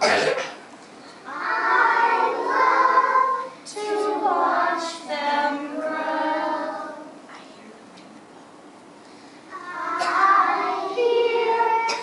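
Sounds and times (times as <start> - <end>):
children singing together: 1.2 - 7.2, 9.5 - 12.0.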